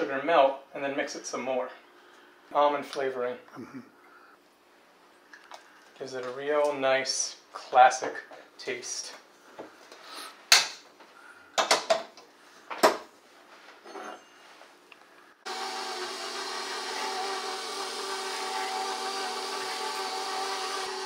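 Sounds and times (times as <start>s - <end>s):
stand mixer motor running: 15.5s - 21.0s.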